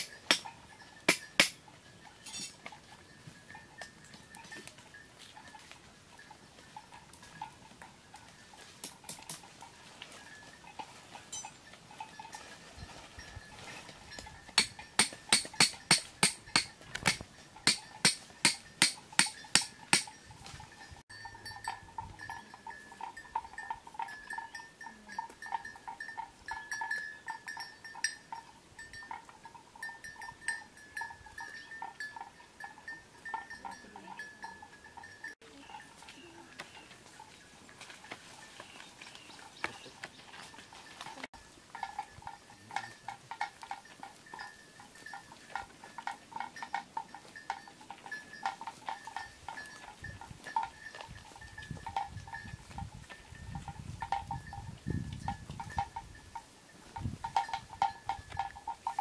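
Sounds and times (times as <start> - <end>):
cattle bells clonking: 0.0 - 59.0.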